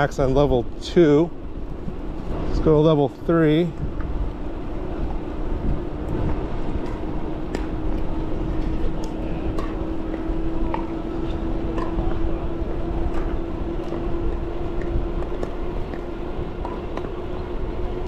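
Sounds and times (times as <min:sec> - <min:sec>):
wind and tyre rumble: 0:00.0 - 0:18.0
electric bike motor whining: 0:01.3 - 0:18.0.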